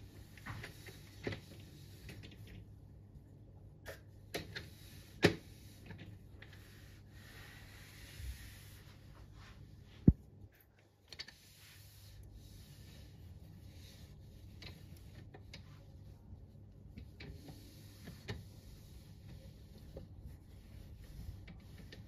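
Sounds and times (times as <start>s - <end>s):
faint rubbing: 11.3s - 22.0s.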